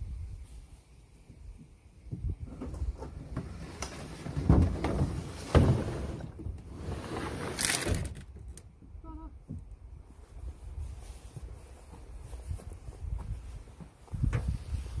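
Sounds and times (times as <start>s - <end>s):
plastic kayak scraping on truck bed: 3.0s - 8.3s.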